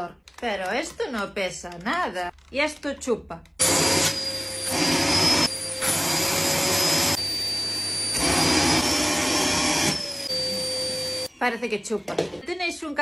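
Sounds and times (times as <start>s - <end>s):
vacuum cleaner running: 3.6s - 11.3s.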